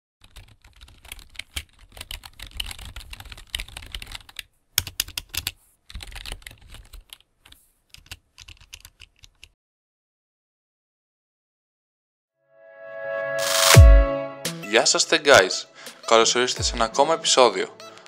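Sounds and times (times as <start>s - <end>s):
keyboard typing: 0.2s - 9.6s.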